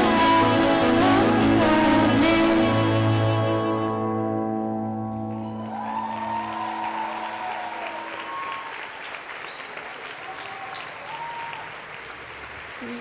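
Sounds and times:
held music chord: 0.0s - 5.8s
congregation applauding and cheering: 5.1s - 13.0s
high whistle: 9.5s - 11.5s.

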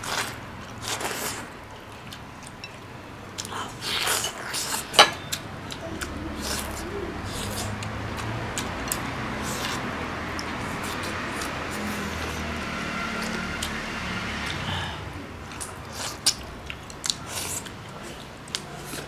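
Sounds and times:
people slurping food: 6.0s - 8.2s.

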